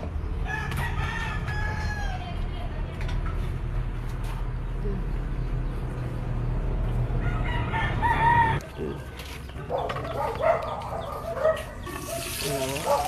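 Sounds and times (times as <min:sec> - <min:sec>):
rooster crowing: 0:00.4 - 0:02.3, 0:07.2 - 0:08.7.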